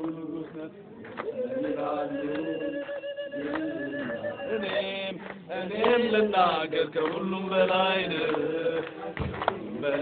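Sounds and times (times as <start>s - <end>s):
men chanting together: 0.0s - 10.0s
steady held tone: 1.4s - 5.1s.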